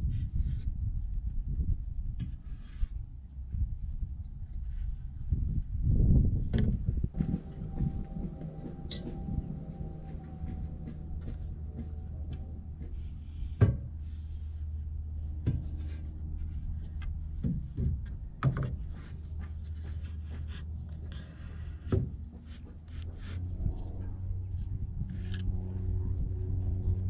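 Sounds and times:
steady low hum: 0.0s - 27.0s
wooden knocks and clunks: 6.4s - 14.1s, 15.3s - 24.0s.

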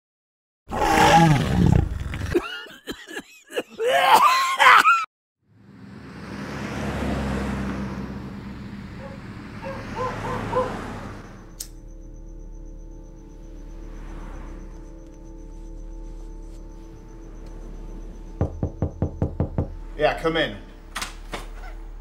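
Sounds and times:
low steady hum: 11.3s - 22.0s.

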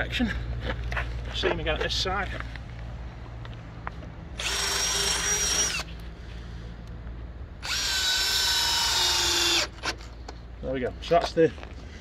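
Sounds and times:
cordless drill driving screw: 4.4s - 5.9s, 7.6s - 10.0s.

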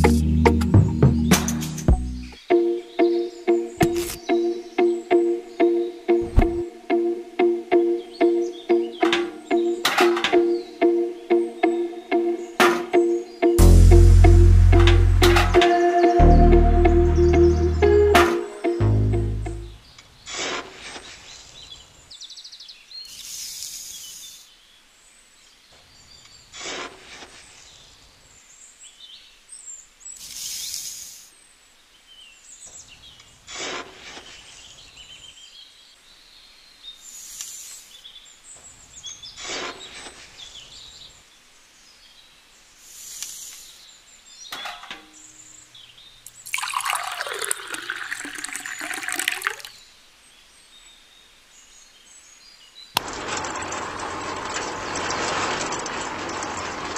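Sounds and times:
falling grains hissing: 23.1s - 24.4s, 30.2s - 31.3s, 42.8s - 43.8s, 46.4s - 49.7s
water pouring and splashing: 46.3s - 49.8s.

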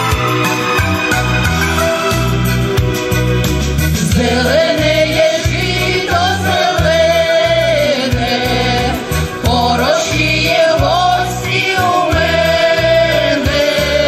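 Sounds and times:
instrumental accompaniment with bass: 0.0s - 14.0s
women singing in harmony: 4.0s - 14.0s.

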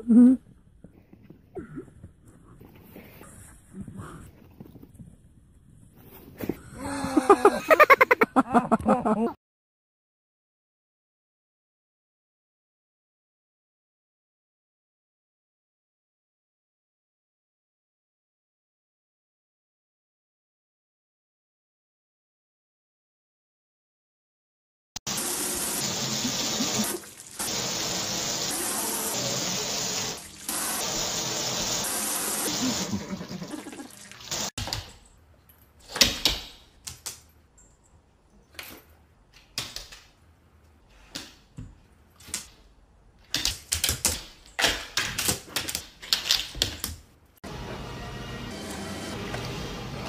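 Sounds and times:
shower spray running: 25.1s - 34.6s.

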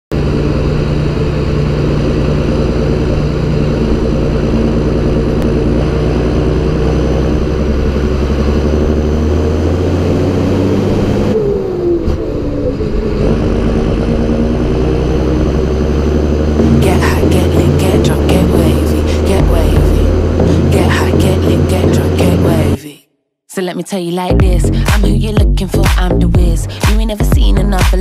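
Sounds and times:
tractor diesel engine running: 0.1s - 22.8s, 24.3s - 28.0s.

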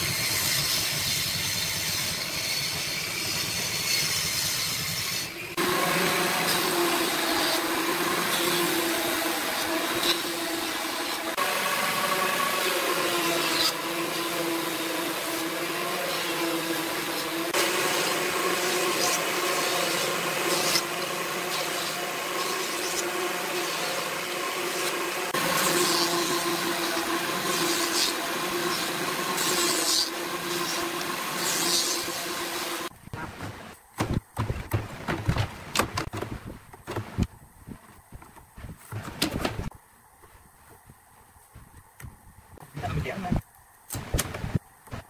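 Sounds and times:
thickness planer running: 0.0s - 33.7s.

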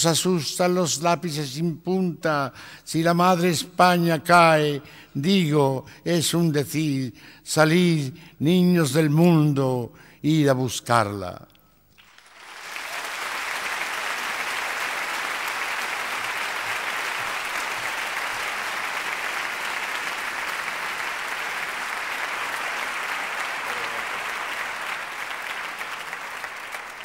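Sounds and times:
audience applauding: 12.0s - 27.0s.

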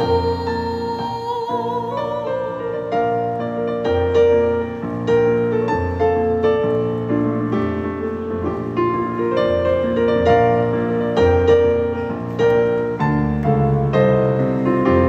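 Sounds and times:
woman singing with vibrato: 0.0s - 3.1s
digital piano playing: 0.0s - 15.0s.

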